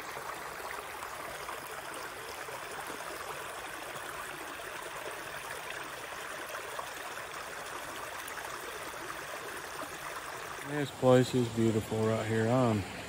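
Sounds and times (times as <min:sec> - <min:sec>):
creek water rushing over stones: 0:00.0 - 0:13.0.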